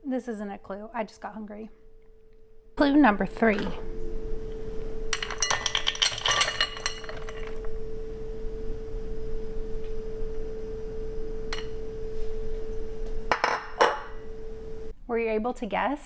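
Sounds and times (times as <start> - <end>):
steady hum: 0.0 - 15.9
frozen fruit clattering into bowl: 5.2 - 7.7.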